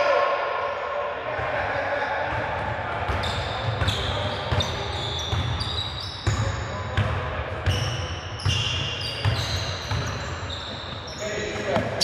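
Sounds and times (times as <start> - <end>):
sneakers squeaking on court: 3.1 - 12.0.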